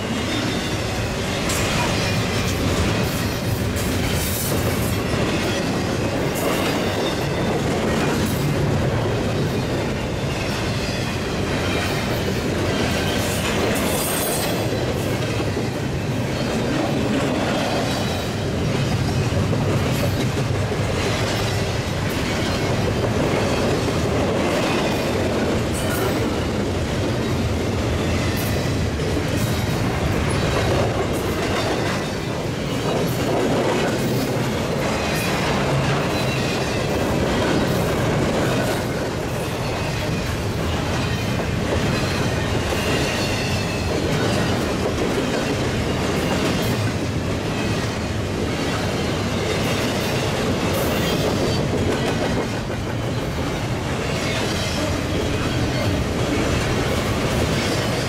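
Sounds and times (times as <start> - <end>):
freight train cars rolling: 0.0 - 58.0.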